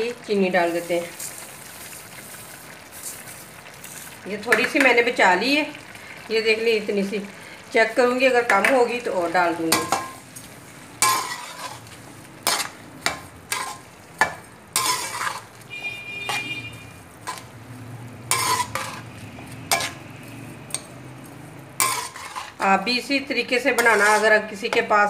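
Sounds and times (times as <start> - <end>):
metal spoon scraping a pot: 11.0 - 17.6, 18.2 - 22.7, 23.8 - 24.8.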